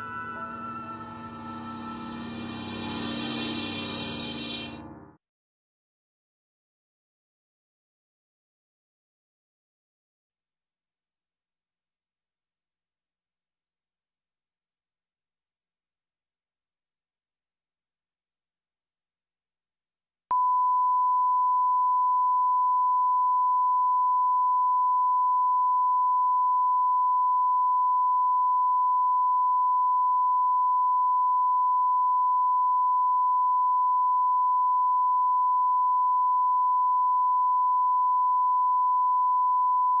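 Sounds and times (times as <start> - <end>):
steady sine-wave tone: 20.3 - 40.0.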